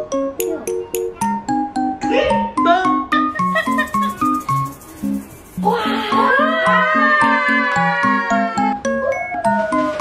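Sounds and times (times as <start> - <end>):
light tune with bass line: 3.0 - 10.0.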